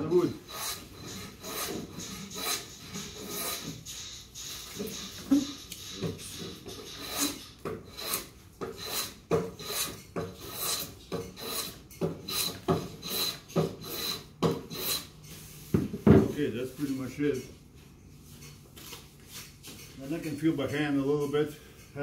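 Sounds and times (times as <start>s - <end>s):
scraping strokes on wooden beam: 0.0s - 17.5s.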